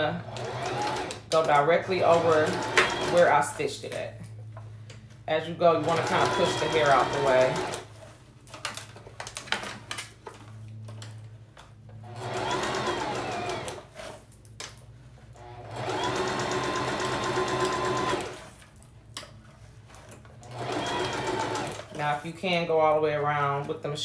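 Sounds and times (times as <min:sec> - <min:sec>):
electric sewing machine stitching: 0:00.0 - 0:03.4, 0:05.7 - 0:07.9, 0:12.0 - 0:14.2, 0:15.4 - 0:18.6, 0:20.4 - 0:22.0.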